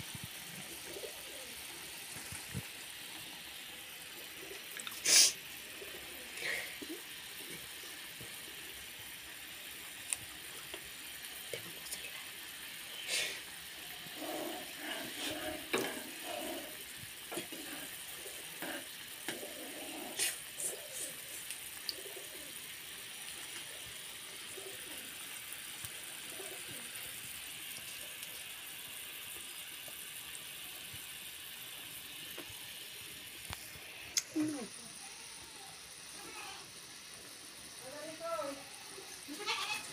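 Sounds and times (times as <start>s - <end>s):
food bubbling in a pan: 0.0s - 38.0s, 38.6s - 39.9s
pigeon cooing: 0.3s - 8.4s, 13.0s - 27.2s
metal spoon scraping a pan: 14.6s - 18.0s.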